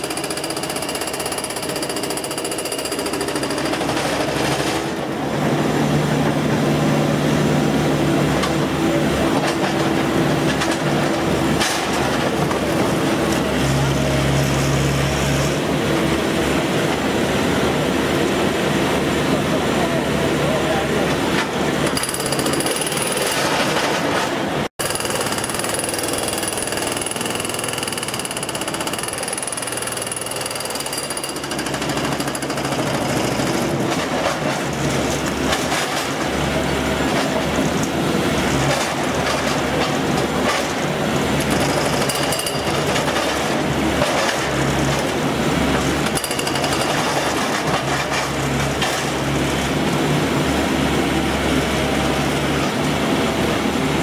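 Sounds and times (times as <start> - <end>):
hydraulic breaker hammering metal: 0.0 - 5.0, 24.8 - 36.4.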